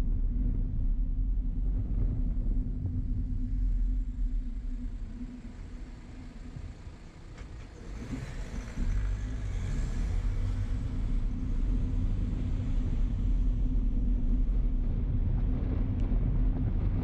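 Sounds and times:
road rumble: 0.0s - 17.0s
wind buffeting microphone: 0.0s - 17.0s
van driving away: 5.2s - 15.9s.

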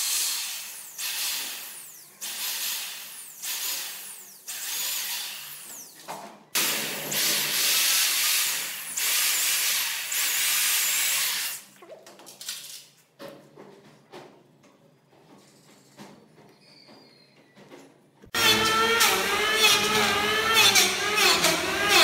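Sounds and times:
electric drill boring into wood: 0.0s - 6.0s, 6.6s - 11.6s, 18.4s - 22.0s.

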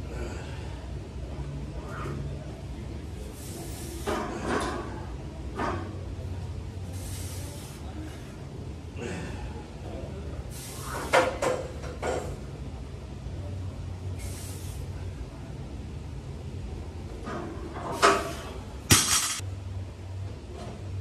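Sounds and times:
short hissing sounds: 3.3s - 4.1s, 6.9s - 7.8s, 10.5s - 11.1s, 14.2s - 14.9s.

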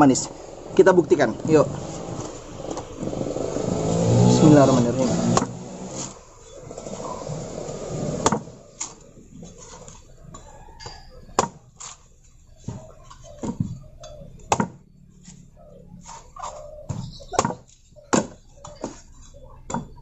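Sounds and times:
sharp chops on coconut: 5.2s - 6.1s, 11.4s - 11.6s, 14.5s - 14.8s, 17.3s - 17.6s, 18.2s - 18.4s.

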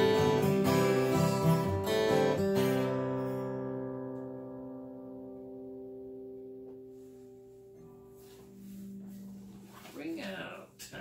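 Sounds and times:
acoustic guitar chord ringing: 0.0s - 9.8s.

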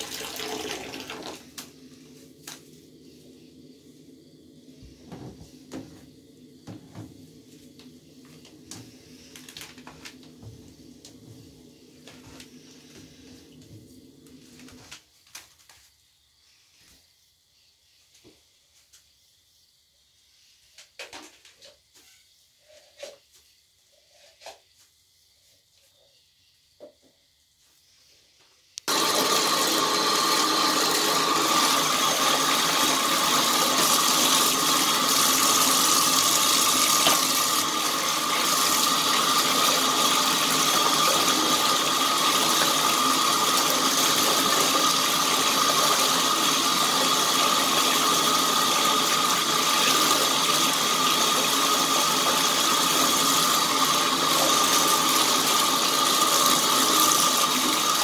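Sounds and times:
tap water pouring into tub: 0.0s - 2.6s, 28.9s - 58.0s.

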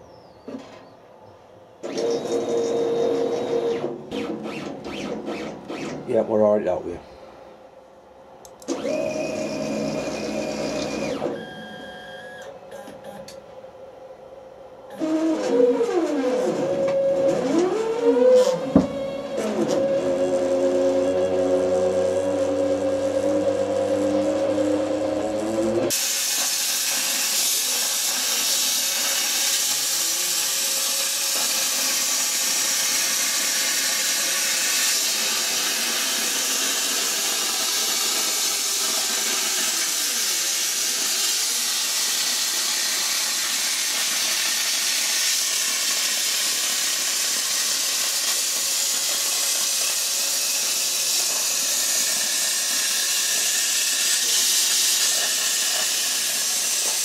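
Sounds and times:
plasma cutter hissing: 25.9s - 57.0s.

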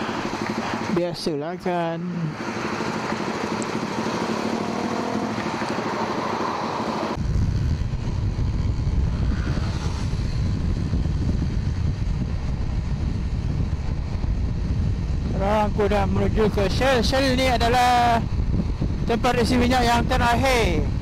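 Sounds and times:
motorcycle engine accelerating: 0.0s - 16.9s
wind rumble on microphone: 7.1s - 21.0s.

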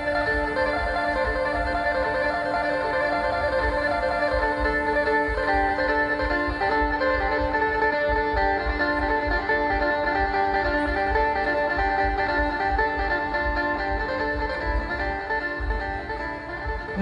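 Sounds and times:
instrumental music with pulsing bass: 0.0s - 17.0s.

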